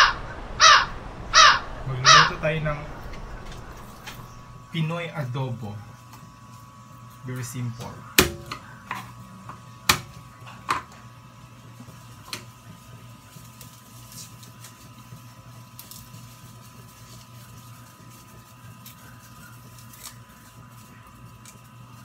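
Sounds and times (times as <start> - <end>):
low hum: 0.0 - 5.9.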